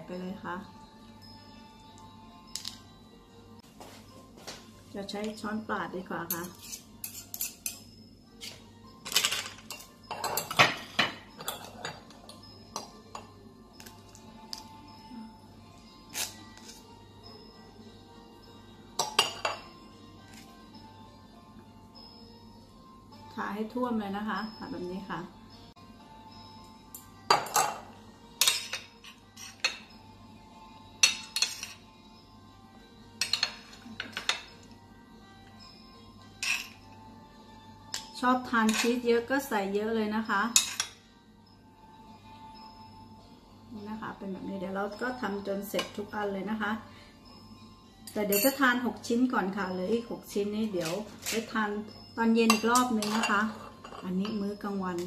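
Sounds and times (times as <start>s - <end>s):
cutlery scraping and clinking glass: 6.3s - 13.3s, 27.3s - 29.9s, 31.0s - 31.8s, 33.2s - 34.7s, 36.4s - 36.8s, 38.0s - 39.0s, 40.6s - 41.0s, 52.5s - 54.1s.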